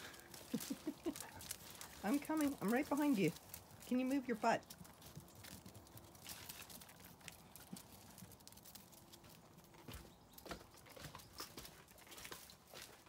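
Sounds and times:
paws pattering: 0.0s - 13.0s
footsteps on concrete: 9.2s - 13.0s.

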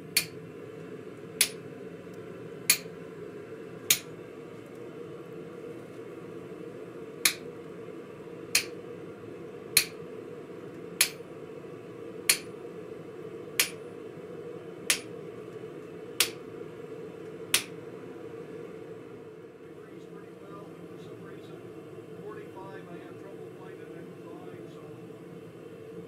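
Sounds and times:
steady hum: 0.0s - 26.0s
hammer striking chisel on steel: 11.0s - 11.2s.

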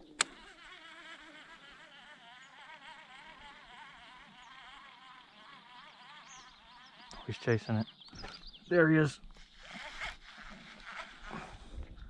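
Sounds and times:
sharp click: 0.0s - 0.4s
fly buzzing: 0.0s - 12.0s.

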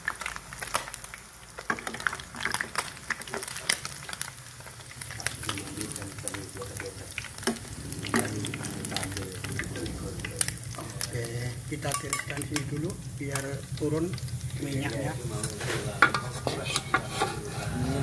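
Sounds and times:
fish sizzling in oil: 0.0s - 18.0s
metal strainer clinking on pan: 11.8s - 12.8s.

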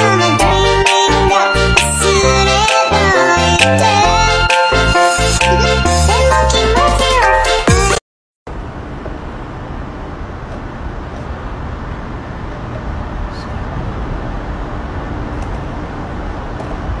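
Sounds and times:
traffic rumble: 8.5s - 17.0s.

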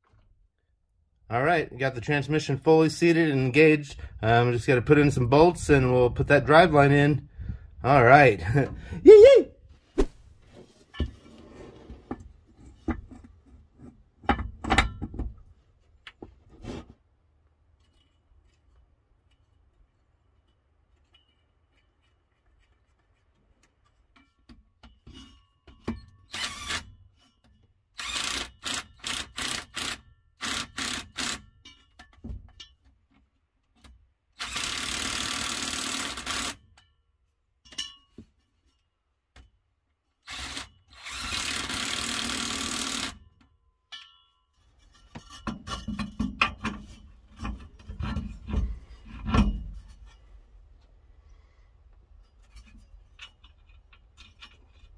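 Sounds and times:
steel driveshaft knocks and clunks: 12.1s - 15.5s, 43.9s - 50.3s.

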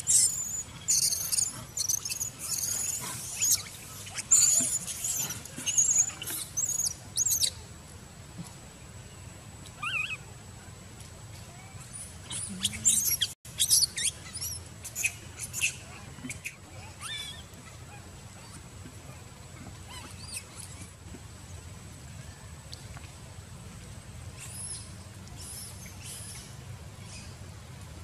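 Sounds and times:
macaques squeaking and squealing: 0.0s - 7.5s, 9.8s - 10.2s, 11.8s - 17.5s.

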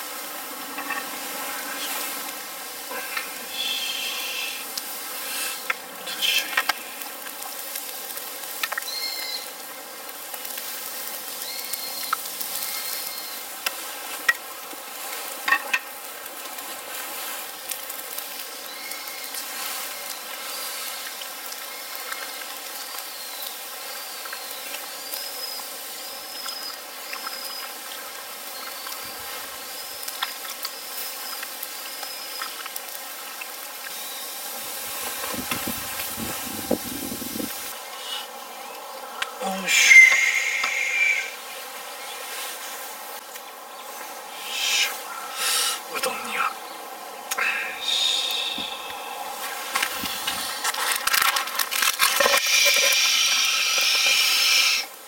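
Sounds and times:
burning log crackling and popping: 4.4s - 38.0s, 48.3s - 55.0s.

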